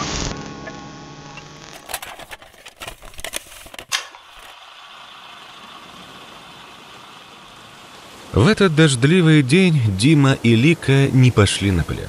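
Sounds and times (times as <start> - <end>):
rain hissing: 4.1 - 12.0.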